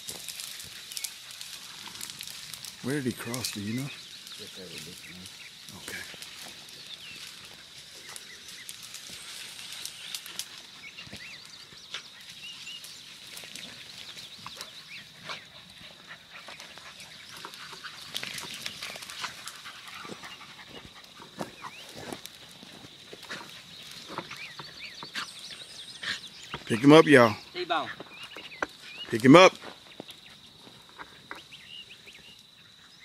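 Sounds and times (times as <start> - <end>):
dogs barking: 15.0 - 22.0.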